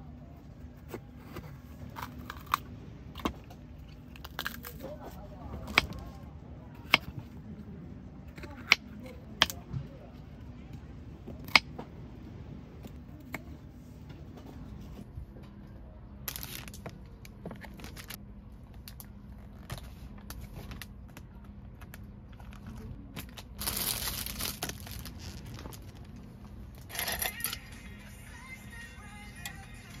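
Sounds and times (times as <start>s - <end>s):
plastic bag crinkling: 23.4s - 26.1s.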